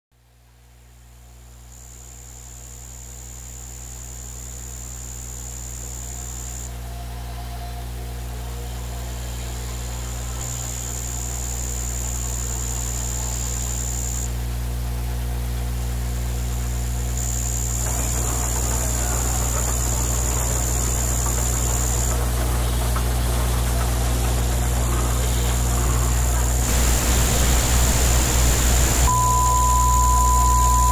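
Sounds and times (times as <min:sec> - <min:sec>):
low mechanical hum: 0:00.2 - 0:30.9
thin high whine: 0:16.4 - 0:30.9
rough hiss: 0:26.6 - 0:29.1.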